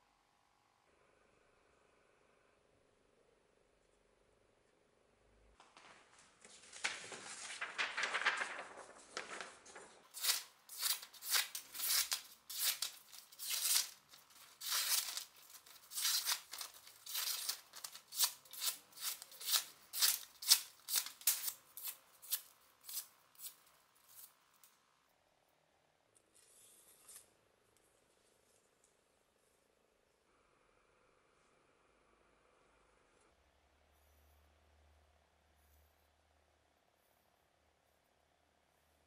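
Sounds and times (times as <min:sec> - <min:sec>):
knife slicing paper: 0:07.6 - 0:24.4.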